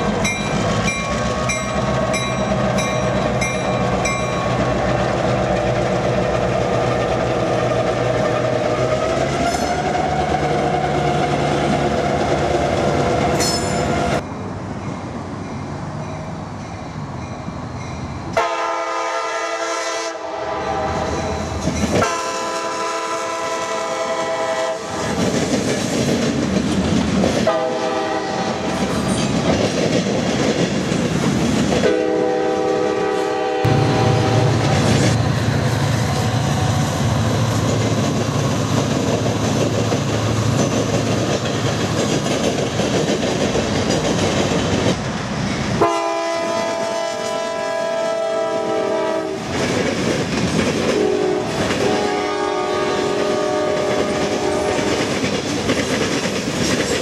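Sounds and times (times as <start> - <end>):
freight train wheels clattering: 0.0 - 14.2, 24.9 - 33.0, 36.8 - 45.8, 49.4 - 52.4, 53.0 - 57.0
locomotive air horn: 18.4 - 21.3, 22.0 - 25.1, 27.5 - 28.7, 31.8 - 34.8, 45.8 - 49.4, 51.0 - 55.1.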